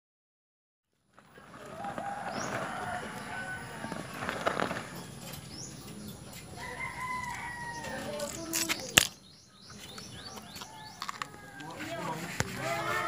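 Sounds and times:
rooster crowing: 1.6s - 4.2s, 6.6s - 8.3s, 10.6s - 13.0s.

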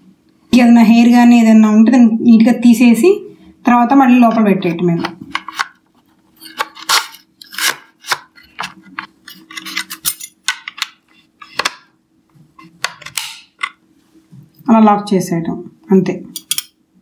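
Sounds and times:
faint steady hum: 0.0s - 17.0s
metal spoon scraping plastic: 5.3s - 11.8s
plastic parts clicking and scraping: 6.4s - 11.8s.

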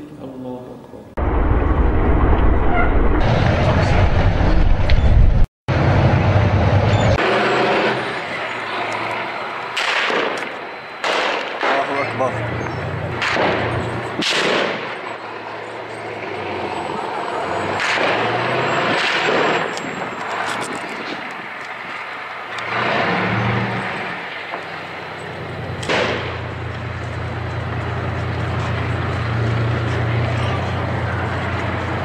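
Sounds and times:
rumbling echo: 1.2s - 6.8s
low vehicle engine hum: 1.2s - 32.0s
heavy gunfire echoing: 11.0s - 12.0s, 13.2s - 15.0s.

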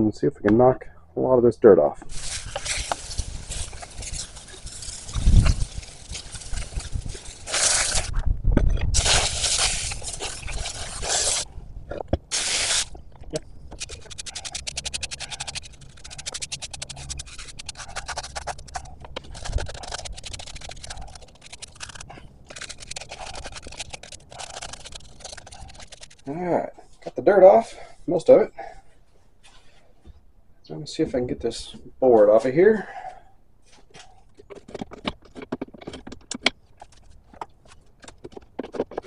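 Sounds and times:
brush scrubbing metal: 2.1s - 8.1s, 9.0s - 11.5s, 12.3s - 13.0s, 13.8s - 26.3s
garden hose spraying water: 2.1s - 8.1s, 12.3s - 13.0s.

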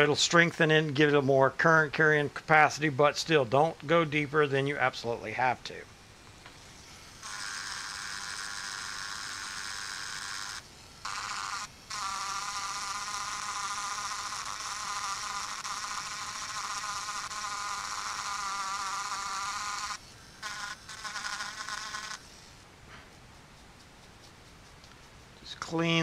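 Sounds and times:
mini grinder buzzing whine: 6.2s - 22.6s.

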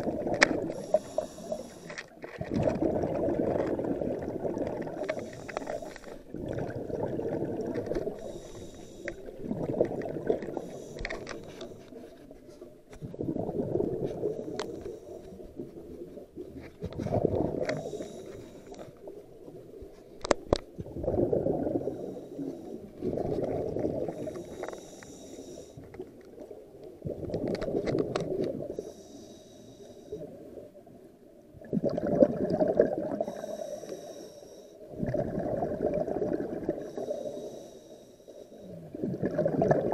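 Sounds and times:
gurgling exhale bubbles: 0.0s - 11.6s, 13.0s - 19.7s, 20.8s - 24.8s, 26.5s - 28.9s, 31.6s - 33.8s, 34.8s - 37.6s, 38.7s - 39.9s
regulator inhale hiss: 0.6s - 2.2s, 5.0s - 6.2s, 8.0s - 9.4s, 10.5s - 12.1s, 14.2s - 15.4s, 17.7s - 19.1s, 21.8s - 22.9s, 24.1s - 25.9s, 28.7s - 30.3s, 33.2s - 34.9s, 36.7s - 38.8s.

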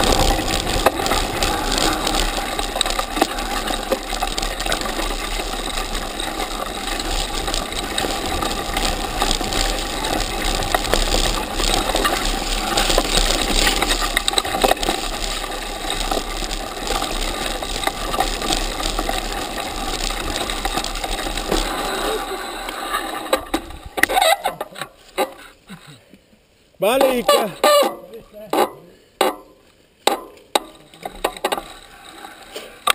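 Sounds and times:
bike rattling over rough ground: 0.0s - 26.0s, 26.8s - 32.9s
tyre noise: 0.0s - 32.9s.

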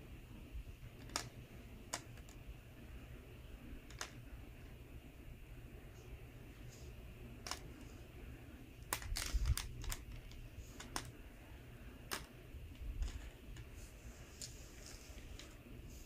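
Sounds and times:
plastic balls clicking: 1.0s - 2.4s, 3.8s - 4.2s, 7.4s - 7.8s, 8.8s - 11.2s, 12.0s - 13.6s.

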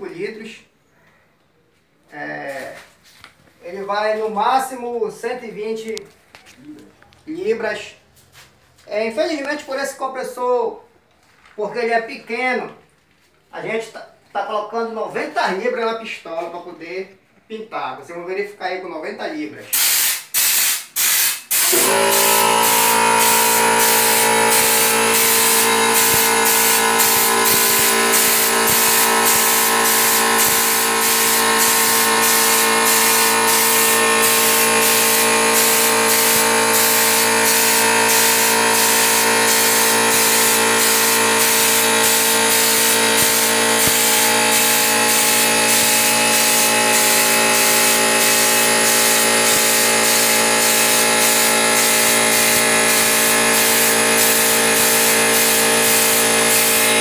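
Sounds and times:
spray gun hissing: 19.7s - 57.0s
air compressor humming: 19.8s - 57.0s.

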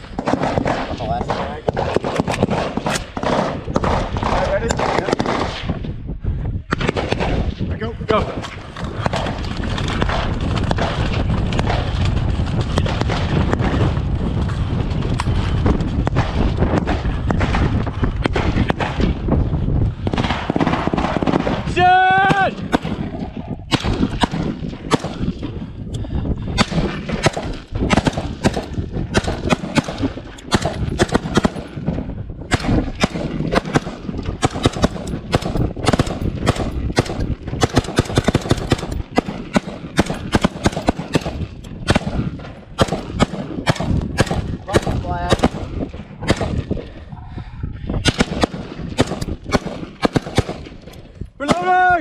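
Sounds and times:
rifle gunfire: 0.0s - 5.8s, 6.7s - 7.6s, 8.8s - 14.1s, 15.3s - 19.2s, 20.1s - 25.5s, 26.6s - 31.9s, 32.5s - 46.8s, 48.0s - 51.8s.

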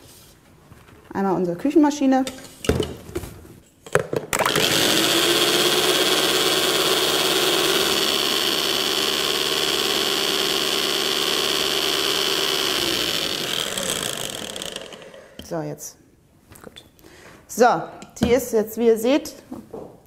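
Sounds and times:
electric hand mixer whirring: 4.4s - 15.5s.

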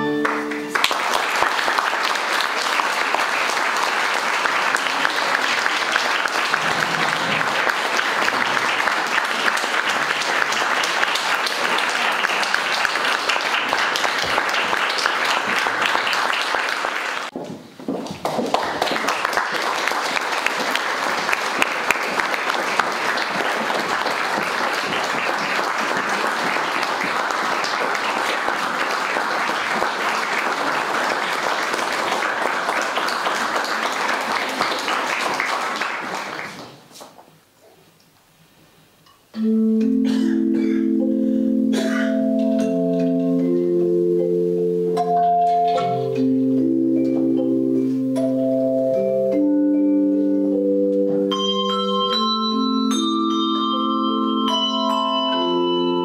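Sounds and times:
audience applauding: 0.0s - 17.4s, 18.0s - 37.0s.

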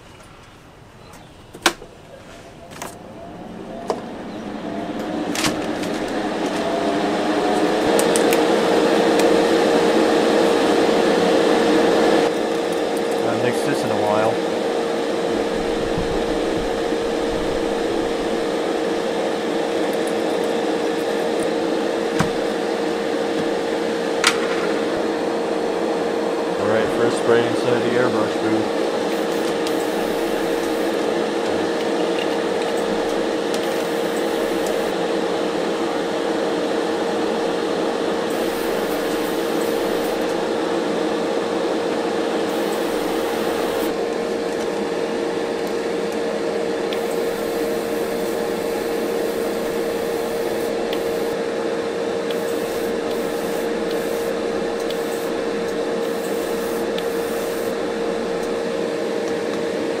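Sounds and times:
exhaust fan humming: 0.0s - 60.0s
airbrush hissing spray: 29.0s - 31.0s, 33.6s - 34.9s, 38.3s - 40.3s, 42.5s - 44.0s, 47.0s - 51.4s, 52.3s - 55.4s, 56.0s - 57.8s.

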